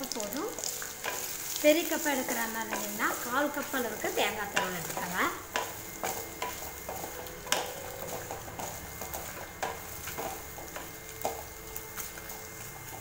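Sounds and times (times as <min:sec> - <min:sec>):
light sizzle of frying: 0:00.0 - 0:13.0
spatula knocking against pan: 0:04.5 - 0:11.5.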